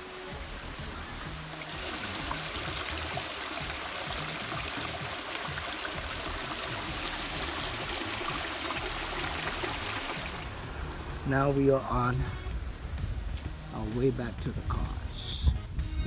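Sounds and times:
stream trickling over boulders: 0.0 - 11.7.

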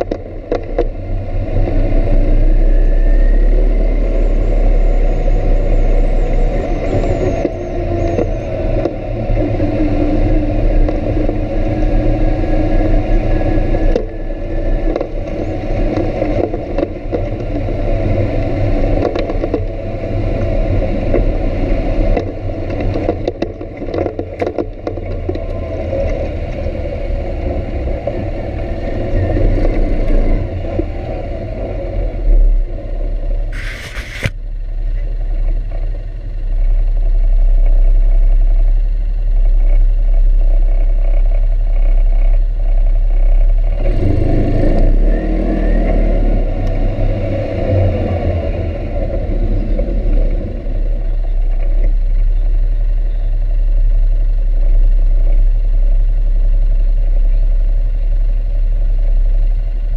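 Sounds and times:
clicks and rattles of vehicle: 0.0 - 1.2, 6.1 - 31.1, 32.5 - 45.2
atv engine running: 0.0 - 59.9
short hiss: 33.6 - 34.3.

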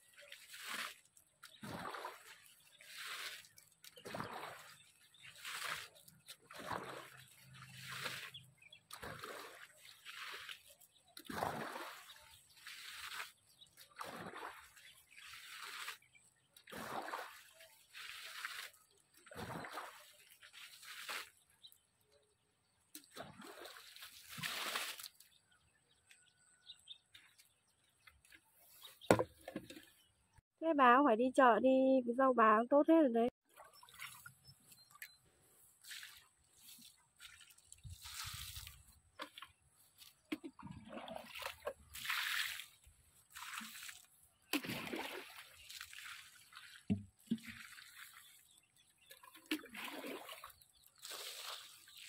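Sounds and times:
water splashing onto plants: 0.0 - 21.4, 22.9 - 25.4, 35.8 - 52.0.

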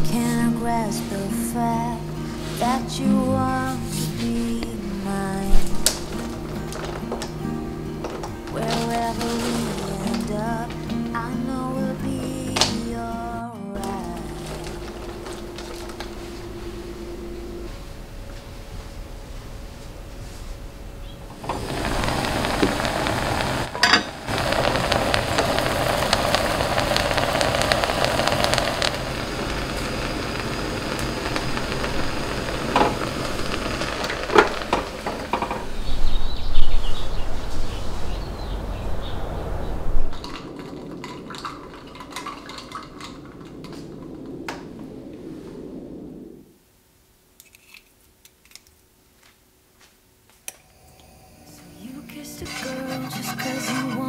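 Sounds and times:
steady hiss: 0.0 - 54.0
dishes and utensils clinking: 23.8 - 24.2, 52.4 - 54.0.

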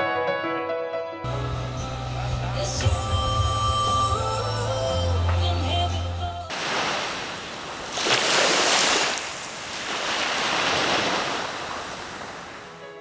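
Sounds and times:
small waves washing onto sand: 6.5 - 12.8.

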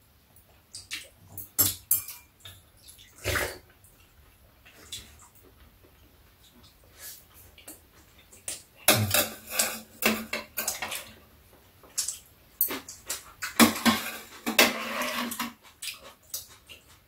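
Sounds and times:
utensils clinking on steel dishes: 1.3 - 2.4, 12.7 - 15.6.

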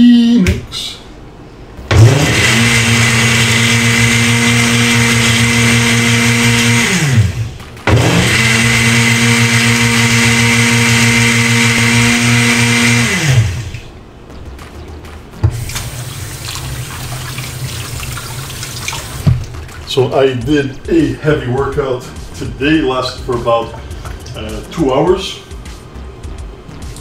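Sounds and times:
countertop blender running: 1.9 - 13.9.

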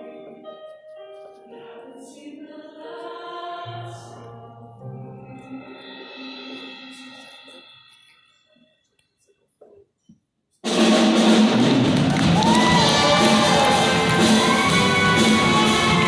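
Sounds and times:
choir singing: 1.5 - 7.3, 12.8 - 16.0
live band playing: 10.7 - 16.0.

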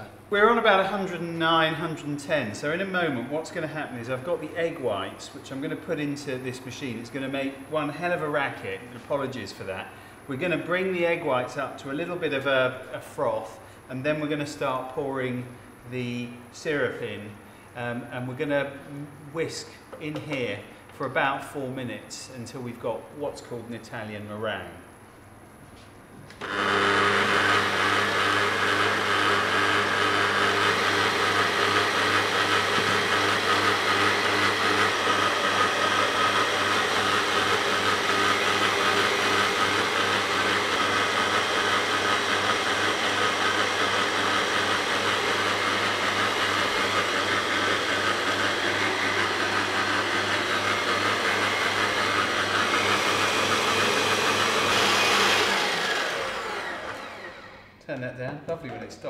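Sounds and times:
stand mixer whirring: 26.4 - 57.7.

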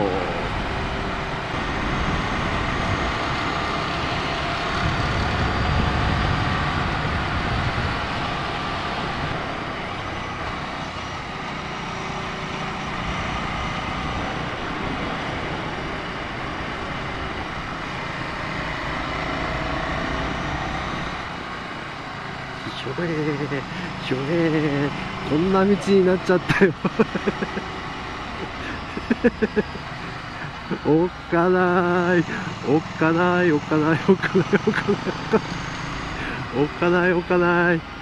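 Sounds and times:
wind and road noise: 0.0 - 38.0.

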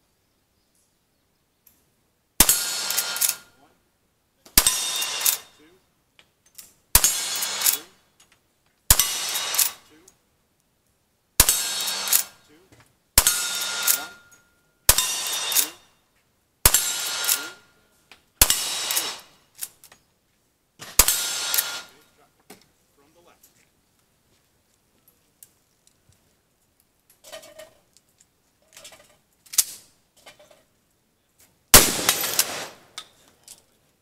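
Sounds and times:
rifle shots: 2.4 - 3.5, 4.6 - 5.5, 7.0 - 7.9, 8.9 - 9.9, 11.4 - 12.4, 13.2 - 14.3, 14.9 - 15.8, 16.6 - 17.6, 18.4 - 19.4, 20.8 - 22.0, 31.7 - 33.0
steel target clanging: 2.4 - 3.5, 4.6 - 5.6, 7.0 - 7.9, 8.9 - 9.9, 11.4 - 12.4, 13.2 - 15.9, 16.7 - 17.8, 18.4 - 19.4, 20.8 - 22.0, 31.8 - 33.2.

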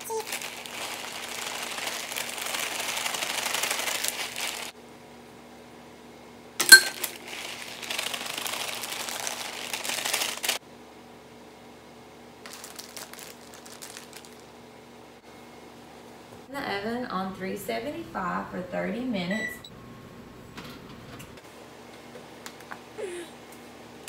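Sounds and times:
plastic bag rustling: 0.0 - 4.7, 6.7 - 10.6, 12.4 - 14.6
zip-top bag crinkling: 0.0 - 4.7, 6.9 - 10.6, 12.5 - 14.5
sharp ringing clink: 6.6 - 7.0.

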